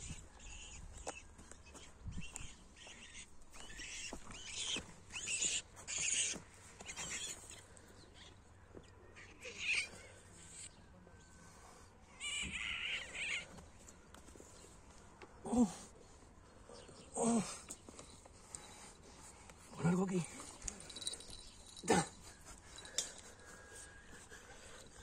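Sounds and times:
high-pitched animal cries: 2.8 - 7.4, 9.2 - 10.2, 12.1 - 13.6.

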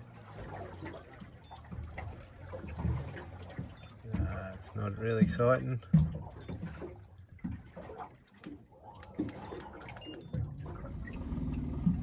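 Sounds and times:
boat motor hum: 0.0 - 12.0
water lapping against boat hull: 0.0 - 12.0
light knocks on hull: 5.1 - 7.7.

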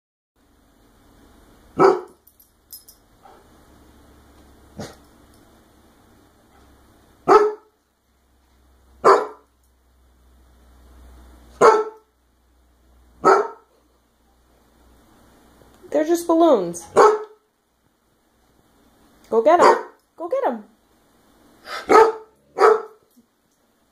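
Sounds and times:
dog barking: 1.8 - 2.2, 7.2 - 7.7, 9.0 - 9.5, 11.6 - 12.1, 13.2 - 13.7, 16.9 - 17.4, 19.6 - 20.0, 21.8 - 23.0.

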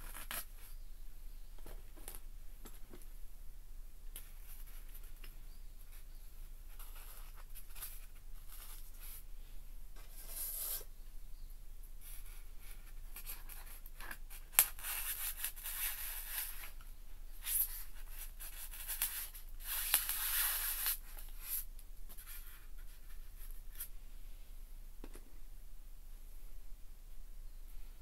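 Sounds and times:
stick scraping styrofoam: 10.0 - 10.9, 17.4 - 21.7.

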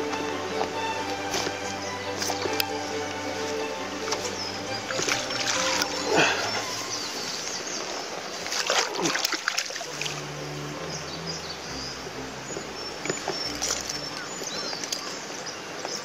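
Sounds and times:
fish splashing in water: 4.1 - 6.7, 7.8 - 10.2.

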